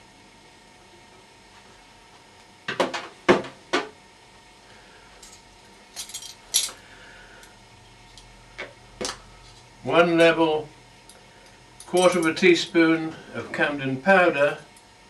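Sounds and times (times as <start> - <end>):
metal and glass items clinking: 6.0 - 6.8.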